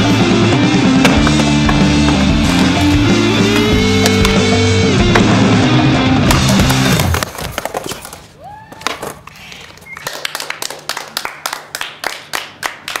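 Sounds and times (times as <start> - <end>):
background music: 0.0 - 7.2
people clapping: 9.8 - 13.0.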